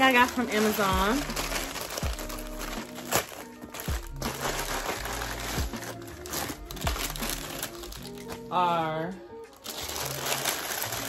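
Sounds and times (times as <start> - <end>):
plastic packaging crinkling: 0.0 - 8.6, 9.4 - 11.0.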